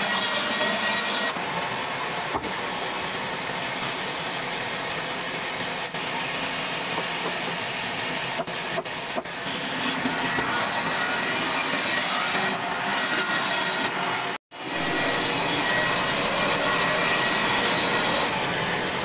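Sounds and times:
band saw cutting wood: 0:00.0 - 0:01.4, 0:06.9 - 0:19.0.

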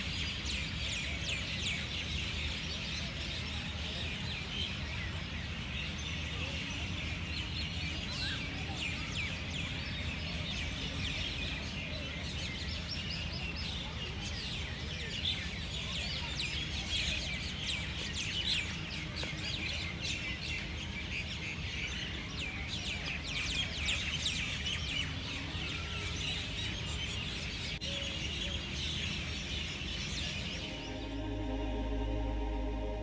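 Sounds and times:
birds chirping: 0:27.8 - 0:33.0
steady low rumble: 0:30.5 - 0:33.0.

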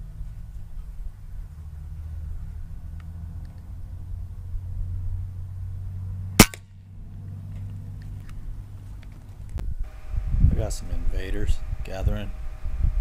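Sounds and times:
steady low hum: 0:00.0 - 0:13.0
air rifle shot crack: 0:06.4 - 0:06.7.

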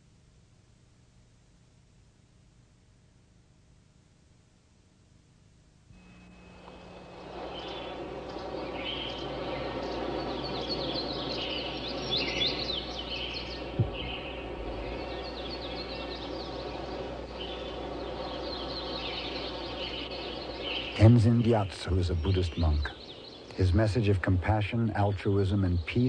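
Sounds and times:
steady outdoor background noise: 0:00.0 - 0:26.0
birds chirping: 0:06.0 - 0:26.0
short low thump: 0:13.8 - 0:15.3.

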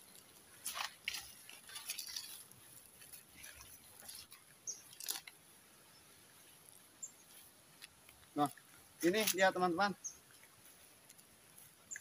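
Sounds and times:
footsteps in dry leaves: 0:00.0 - 0:05.3, 0:09.0 - 0:12.0
twig snapping: 0:03.1 - 0:05.4.

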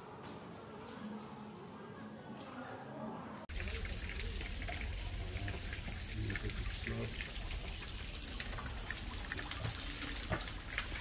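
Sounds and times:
fountain water splashing: 0:03.5 - 0:11.0.

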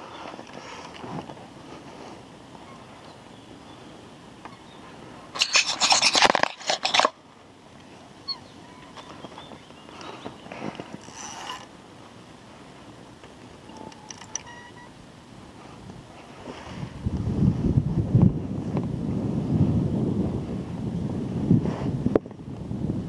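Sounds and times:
fishing reel drag clicking: 0:11.0 - 0:11.7.

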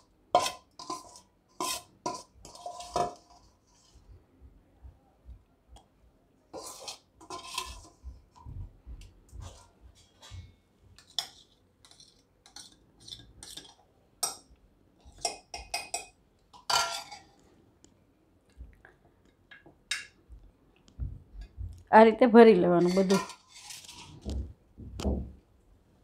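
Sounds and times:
metal spoon scraping steel bowl: 0:00.0 - 0:04.0, 0:06.5 - 0:08.0, 0:11.0 - 0:13.8, 0:15.1 - 0:17.3, 0:22.8 - 0:24.2.

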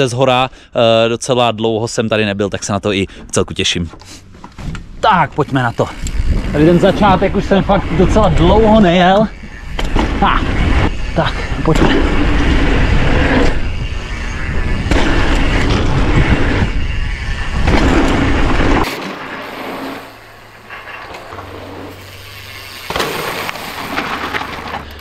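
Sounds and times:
bike tyres rolling over dirt: 0:04.6 - 0:25.0
wind buffeting microphone: 0:05.6 - 0:18.9.

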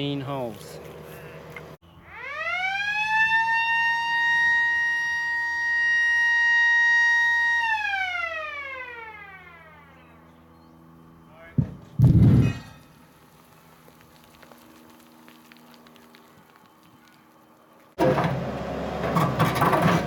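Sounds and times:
warning siren wailing: 0:01.8 - 0:11.4.

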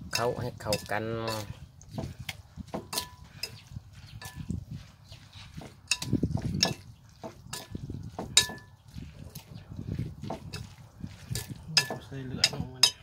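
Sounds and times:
wet squelching of meat: 0:00.0 - 0:12.2
spoon clinking on bowl: 0:00.1 - 0:01.6, 0:02.9 - 0:04.5, 0:05.8 - 0:08.8, 0:10.6 - 0:13.0.

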